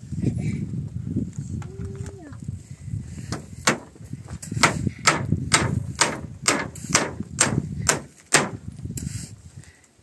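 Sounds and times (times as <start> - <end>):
hammer nailing wooden boards: 3.3 - 3.9, 4.6 - 8.6.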